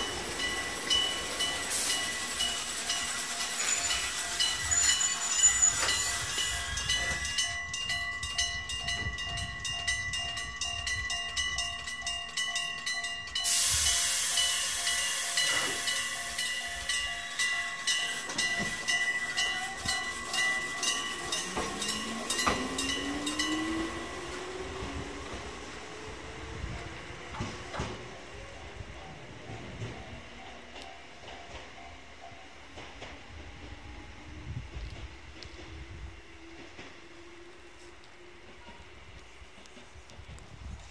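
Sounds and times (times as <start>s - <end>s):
compressed air hiss: 13.4s - 16.7s
train motor whine: 13.4s - 28.0s.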